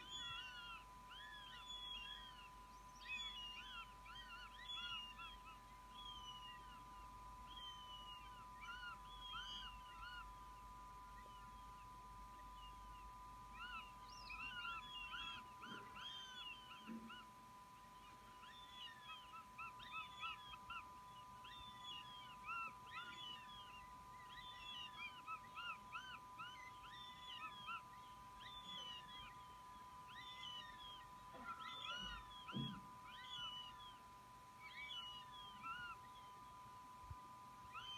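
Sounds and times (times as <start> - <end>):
steady faint tone: 0.0 - 37.9.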